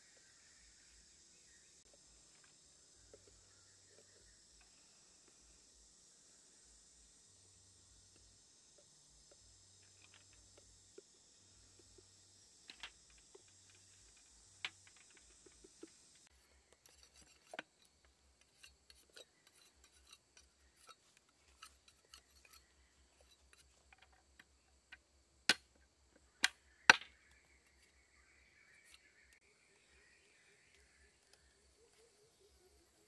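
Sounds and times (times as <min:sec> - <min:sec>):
blade scraping bamboo: 0:12.8 - 0:24.2.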